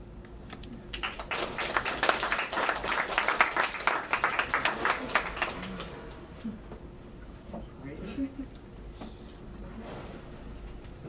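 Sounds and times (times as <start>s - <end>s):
audience applauding: 0.9s - 6.3s.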